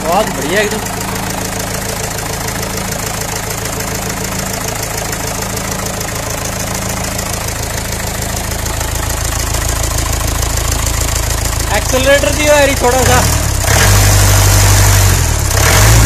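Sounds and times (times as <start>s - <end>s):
diesel engine idling clatter: 0.0s - 16.0s.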